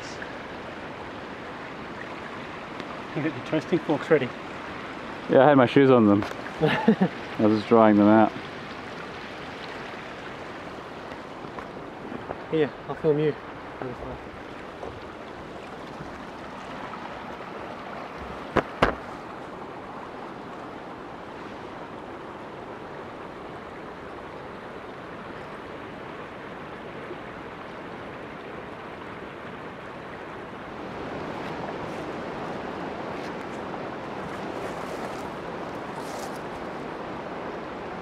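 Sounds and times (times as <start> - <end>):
creek rushing: 0.0 - 38.0
sharp knocks: 18.5 - 19.0.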